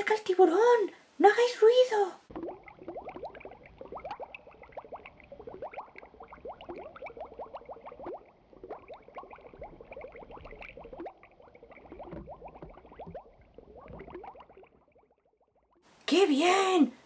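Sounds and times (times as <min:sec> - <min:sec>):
underwater bubbles: 0:02.3 - 0:15.8.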